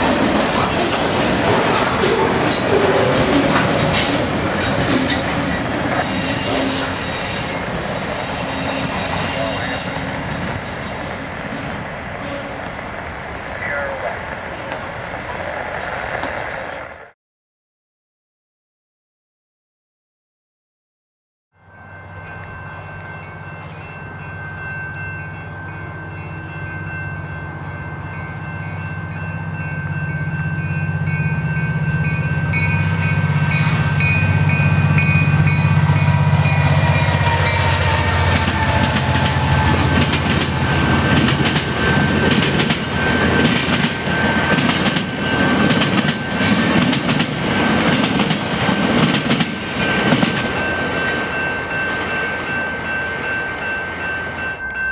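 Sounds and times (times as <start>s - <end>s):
clickety-clack of train wheels: 0.0s - 11.7s, 35.0s - 51.2s
diesel locomotive engine passing: 0.0s - 17.2s, 21.6s - 54.9s.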